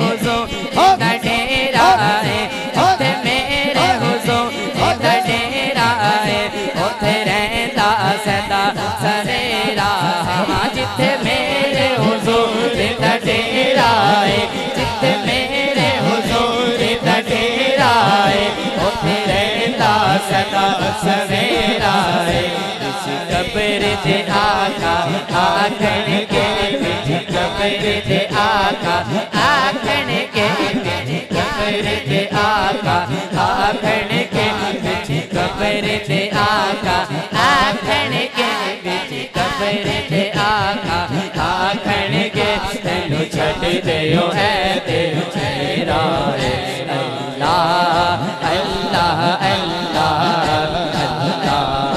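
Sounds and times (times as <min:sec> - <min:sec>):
man singing devotional song: 0:00.0 - 0:51.9
steady drone: 0:29.9 - 0:31.8.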